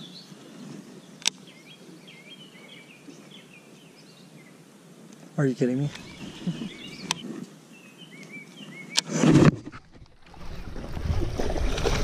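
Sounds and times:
songbirds chirping: 0.0s - 9.2s
sharp clicks: 7.0s - 7.2s
fish splashing in water: 10.2s - 12.0s.

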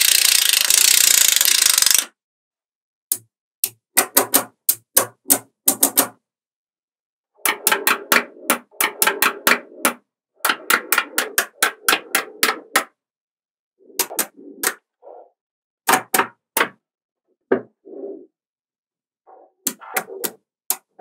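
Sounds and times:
magnetic balls clicking: 0.0s - 2.1s, 13.9s - 14.8s.

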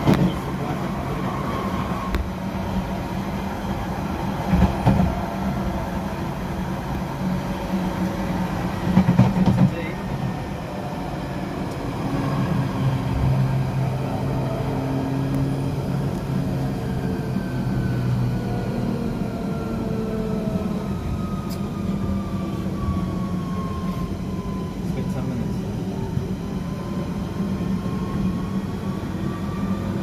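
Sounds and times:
train rumbling on track: 0.0s - 30.0s
train motor whine: 11.3s - 30.0s.

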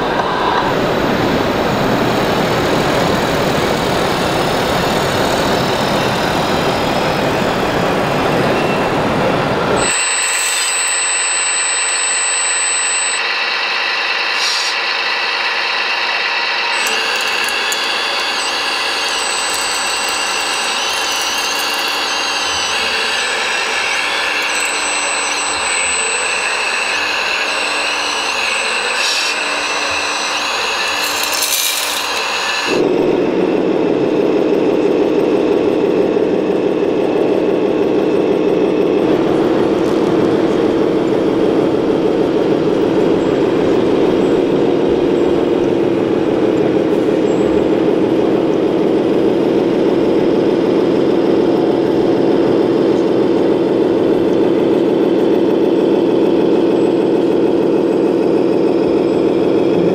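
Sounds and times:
model truck engine drone: 0.0s - 59.9s
small electric motors whining: 0.0s - 59.9s
clicks: 16.7s - 32.8s.

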